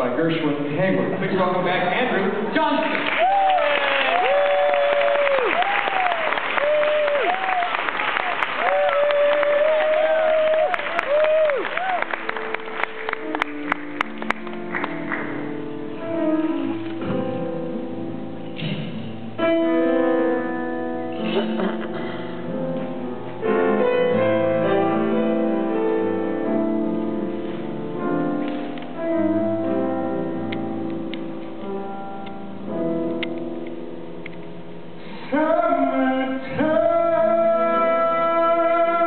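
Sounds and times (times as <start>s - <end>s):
grand piano playing chords: 0.0s - 3.0s, 9.3s - 39.0s
audience applause: 2.8s - 15.4s.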